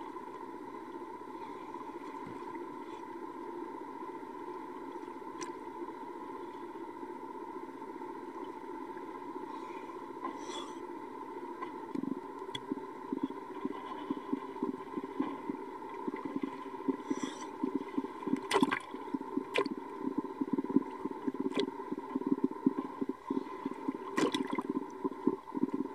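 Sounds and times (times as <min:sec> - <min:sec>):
steady hum: 0:00.0 - 0:25.9
water gurgling and lapping: 0:11.6 - 0:25.9
bubbly crackling: 0:13.6 - 0:25.9.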